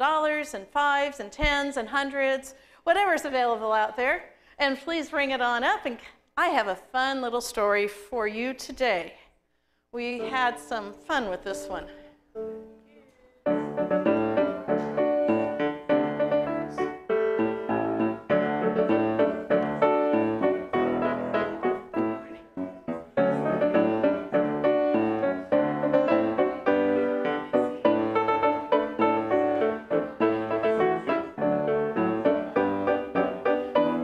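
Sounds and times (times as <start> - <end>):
piano music: 10.1 - 34.0.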